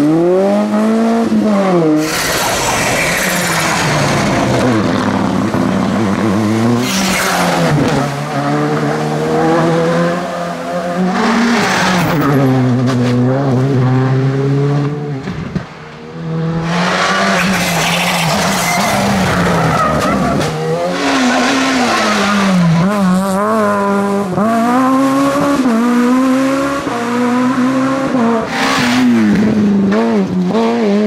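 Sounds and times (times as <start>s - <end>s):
rally car engines revving: 0.0s - 31.0s.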